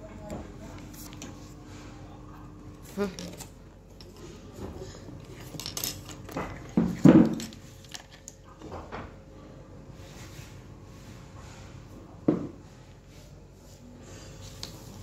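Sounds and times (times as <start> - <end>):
objects knocking on wooden table: 12.3 - 12.6.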